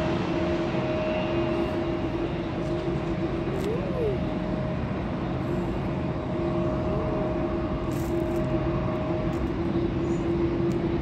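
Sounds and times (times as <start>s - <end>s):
jet engine rumble: 0.0s - 11.0s.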